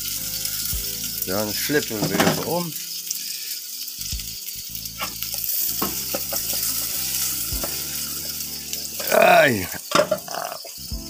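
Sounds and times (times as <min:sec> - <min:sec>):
flatbread sizzling in hot oil: 0:00.0 - 0:11.0
knocks of bread and pan: 0:09.9 - 0:10.3.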